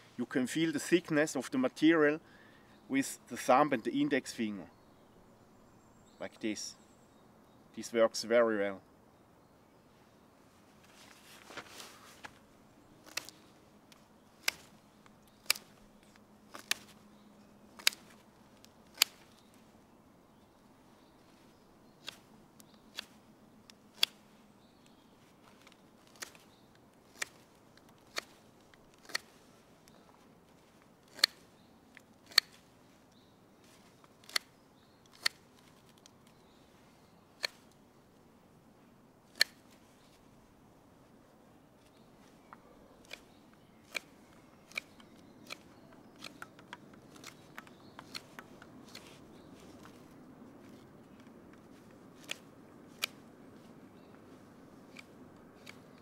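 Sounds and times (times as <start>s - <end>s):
knife cutting wood shavings: 15.4s - 17.0s.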